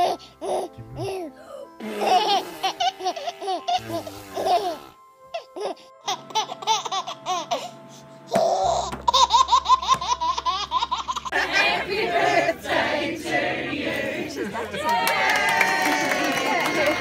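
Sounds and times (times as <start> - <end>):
babies laughing: 0.0 - 11.5.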